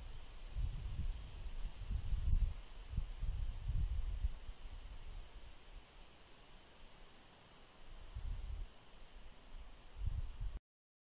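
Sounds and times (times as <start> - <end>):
crickets chirping: 0.0 - 10.3.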